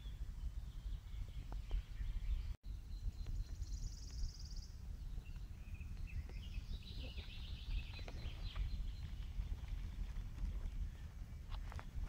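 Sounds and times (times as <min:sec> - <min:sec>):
small birds singing: 0:00.0 - 0:12.0.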